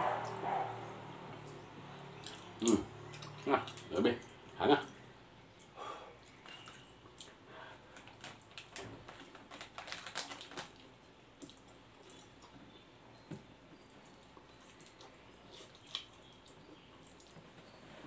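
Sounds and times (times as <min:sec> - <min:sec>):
plastic packet crinkling: 0:08.0 - 0:10.9.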